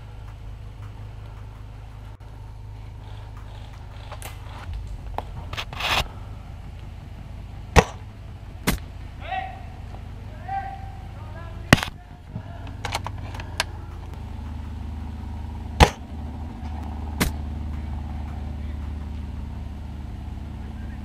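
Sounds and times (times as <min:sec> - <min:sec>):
sharp gun cracks: 0:07.7 - 0:08.9, 0:11.7 - 0:12.0, 0:15.8 - 0:16.0.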